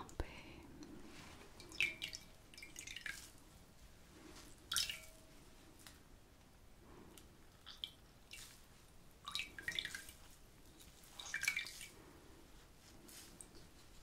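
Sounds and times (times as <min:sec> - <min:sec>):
water dripping into bowl: 0:01.6 - 0:03.4, 0:04.7 - 0:06.0, 0:07.5 - 0:08.6, 0:09.2 - 0:11.9
wet cloth wrung out: 0:07.6 - 0:12.1.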